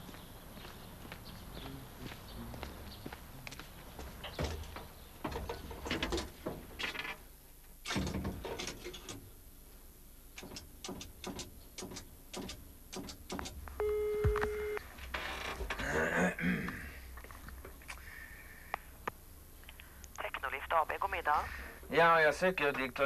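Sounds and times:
steady ringing tone in earpiece: 13.8 - 14.8.

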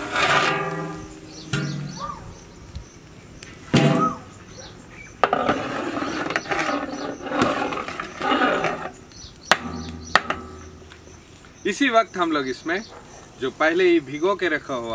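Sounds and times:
ladle clank: 0.0 - 2.1, 9.5 - 11.0
ladle scraping metal pot: 0.0 - 2.1, 5.2 - 11.0
animal call: 1.8 - 2.4, 3.8 - 5.1.

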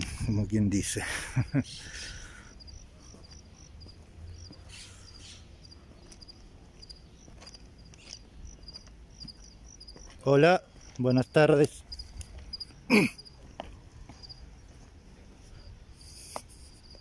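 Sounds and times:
crickets chirping: 0.0 - 17.0
footsteps on gravel ballast: 6.0 - 12.7, 13.4 - 15.4.

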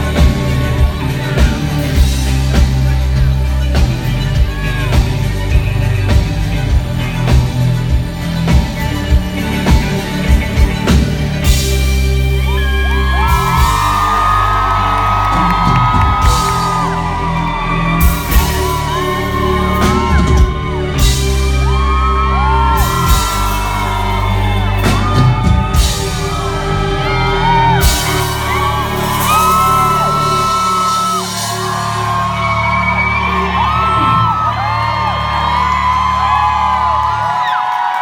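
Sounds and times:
live band playing: 0.0 - 38.0
fans whooping and yelling: 11.4 - 38.0.

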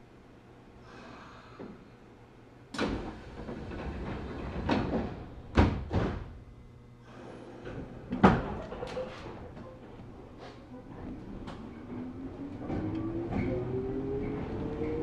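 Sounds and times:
train doors closing with thuds: 2.7 - 6.4, 10.8 - 15.0.

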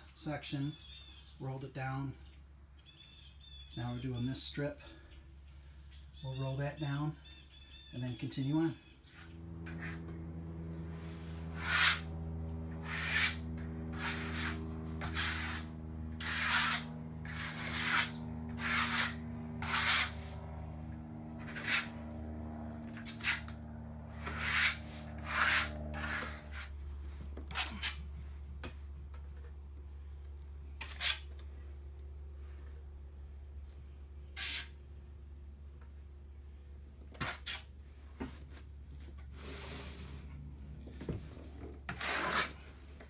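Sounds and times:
low hum: 8.8 - 37.1, 37.7 - 41.9
trowel scraping adhesive on wood: 11.6 - 12.1, 12.8 - 13.4, 14.0 - 20.3, 21.4 - 21.9, 23.0 - 23.5, 24.2 - 26.7, 34.4 - 34.8, 41.9 - 42.6.

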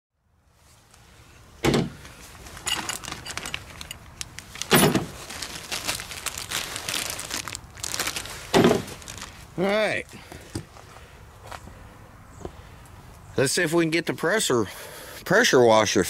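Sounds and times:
plastic bag crinkling: 2.4 - 10.1.

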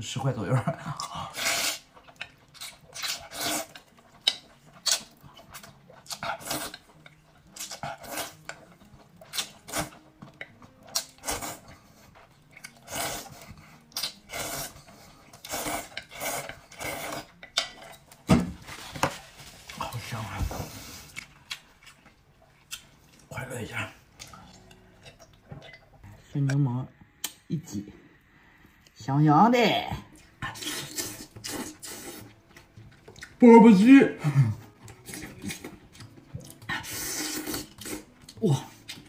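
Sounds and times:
slurping and chewing noodles: 0.8 - 18.1, 30.2 - 33.4, 34.3 - 39.0.

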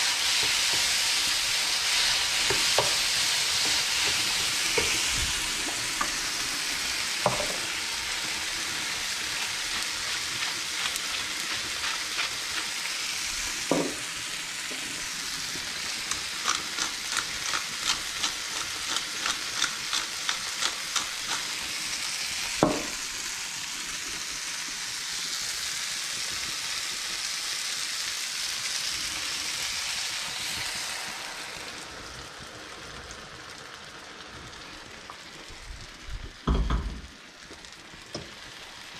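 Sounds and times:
vegetables sizzling in a frying pan: 0.0 - 38.9
pepper mill grinding clicks: 16.0 - 21.5.

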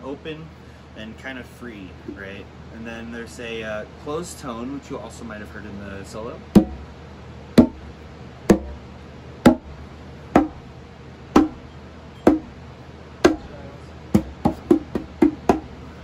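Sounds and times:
muted conga strokes: 8.5 - 8.8, 9.4 - 9.8, 10.4 - 10.6, 11.4 - 11.6, 12.3 - 12.5, 13.2 - 13.5, 14.1 - 15.8.

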